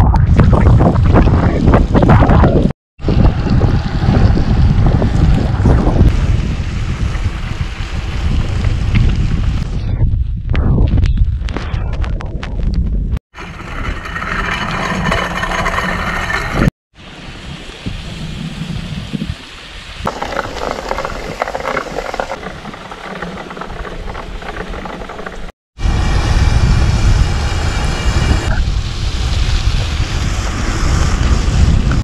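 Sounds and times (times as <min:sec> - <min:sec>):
wind on microphone: 0:00.0 - 0:14.2, 0:17.3 - 0:32.0
bike tyres rolling on gravel: 0:00.4 - 0:09.7, 0:17.7 - 0:25.5, 0:28.6 - 0:32.0.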